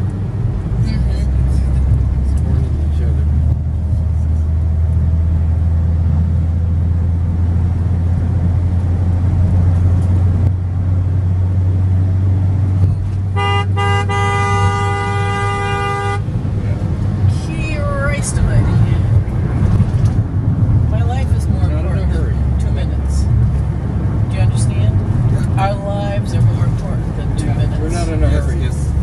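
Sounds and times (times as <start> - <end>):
road noise: 0.0 - 29.0
vehicle engine drone: 0.0 - 29.0
vehicle horn: 13.3 - 16.4.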